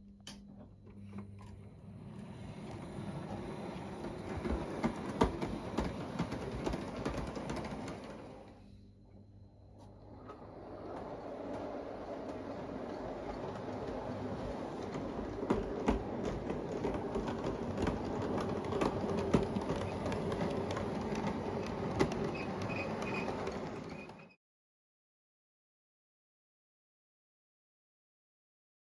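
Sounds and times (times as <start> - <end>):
model train running whir: 1.9 - 8.6, 10.0 - 24.4
wheels clicking on rails: 2.0 - 8.6, 10.1 - 24.4.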